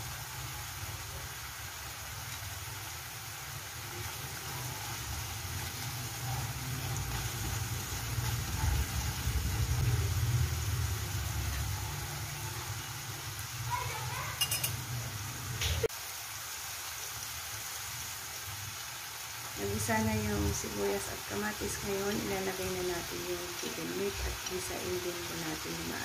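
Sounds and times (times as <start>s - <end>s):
vegetables sizzling in a pan: 0.0s - 26.0s
low engine-like rumble: 6.2s - 13.5s.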